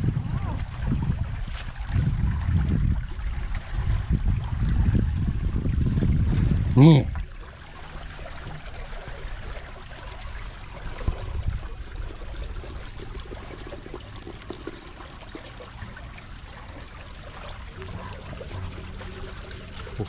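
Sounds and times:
water trickling in a ditch: 0.0 - 20.0.

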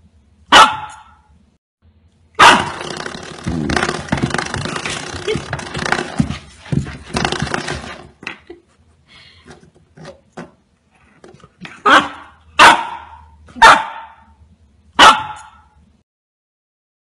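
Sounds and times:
puppy barking: 0.5 - 1.3, 2.4 - 2.9, 11.8 - 14.3, 15.0 - 15.7.

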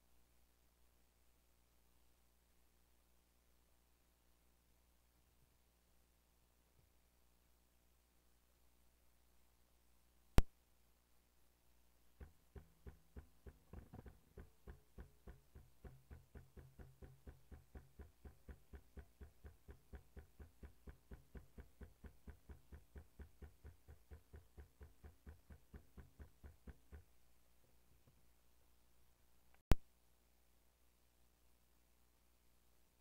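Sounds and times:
hammer tapping steel sheet: 12.2 - 27.1.

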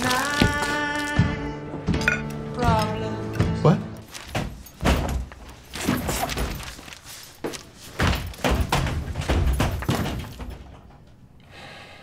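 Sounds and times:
stall door banging: 8.0 - 11.0.

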